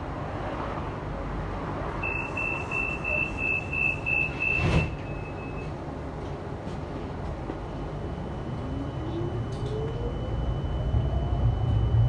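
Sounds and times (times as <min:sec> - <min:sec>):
traffic rumble: 0:00.0 - 0:12.0
high electronic beeps: 0:02.0 - 0:05.6.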